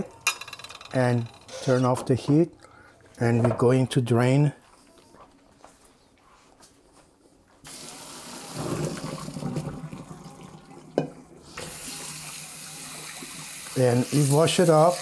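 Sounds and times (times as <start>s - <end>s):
water running into sink: 7.7s - 15.0s.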